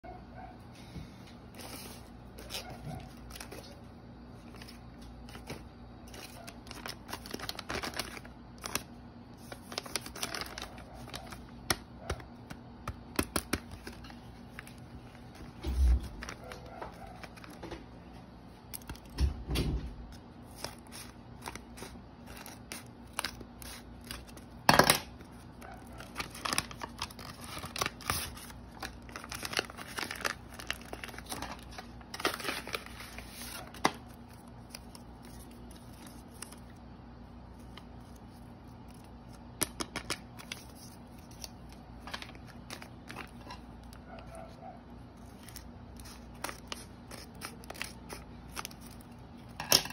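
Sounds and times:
paper rustling and crinkling: 1.3 - 24.6, 25.2 - 36.8, 37.4 - 49.9
scissors snipping paper: 45.2 - 49.0.

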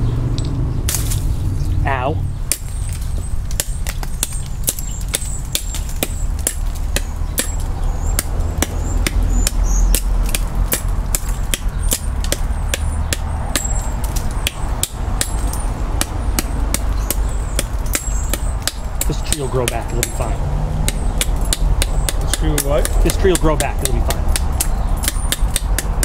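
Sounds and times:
low rumble: 0.0 - 19.0
knife chopping into wood: 2.5 - 20.2, 20.8 - 26.0.

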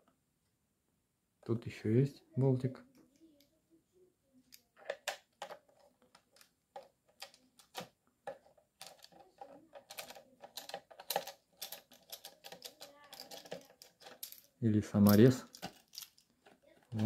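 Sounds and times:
screwdriver clicking and scraping: 4.5 - 14.5.

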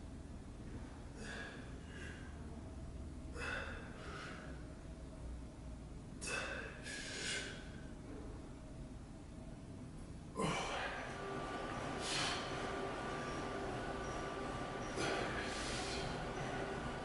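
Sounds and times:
man breathing hard: 1.1 - 2.4, 3.3 - 4.7, 6.2 - 7.9, 11.9 - 12.7, 14.8 - 16.8.

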